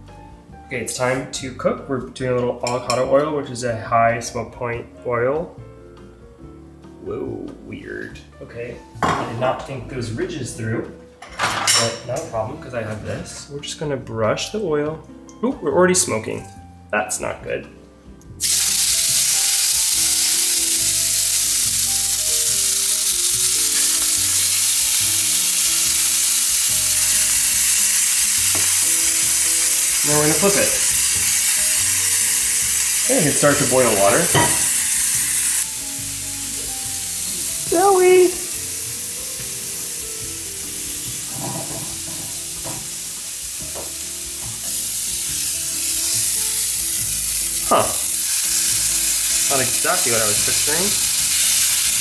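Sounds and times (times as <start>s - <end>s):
background music: 0.0s - 52.0s
steak sizzling in a pan: 18.2s - 52.0s.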